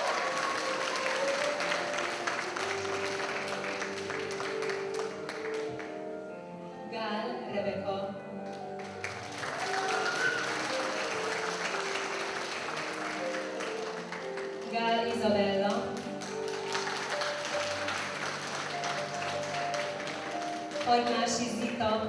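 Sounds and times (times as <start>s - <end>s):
audience applause: 0.0s - 6.0s, 8.8s - 14.7s, 15.9s - 21.2s
music: 0.0s - 22.0s.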